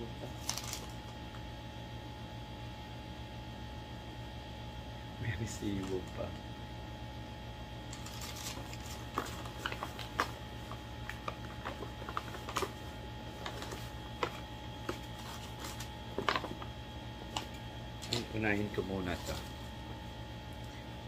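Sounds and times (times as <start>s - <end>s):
steady low hum: 0.0s - 21.0s
packaging crinkling: 0.4s - 1.0s, 7.9s - 18.3s.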